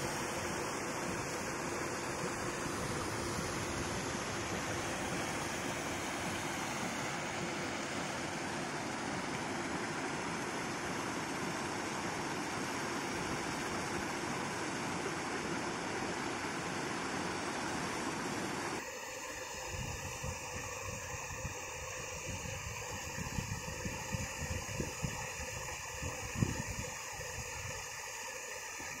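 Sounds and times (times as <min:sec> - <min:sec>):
paddlewheel aerators splashing water: 0:00.0 - 0:20.5
faint steady hum: 0:00.0 - 0:29.0.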